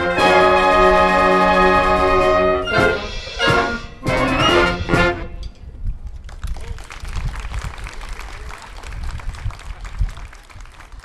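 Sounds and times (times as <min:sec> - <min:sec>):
wind band playing: 0:00.0 - 0:05.6
drum hits: 0:02.7 - 0:05.3
scattered clapping: 0:06.2 - 0:11.0.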